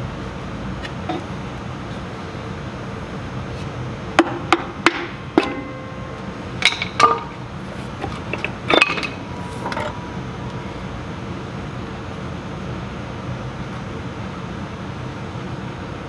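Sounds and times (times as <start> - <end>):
low hum: 4.5 - 13.2.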